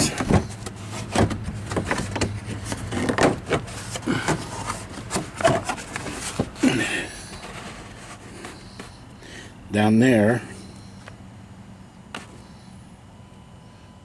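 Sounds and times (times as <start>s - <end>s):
plastic rubbing and creaking: 0.0s - 6.6s
plastic squeaks: 0.0s - 6.6s.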